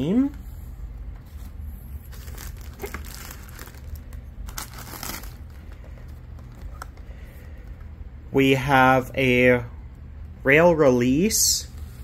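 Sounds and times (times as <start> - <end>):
plastic packing crinkling: 2.1 - 7.0.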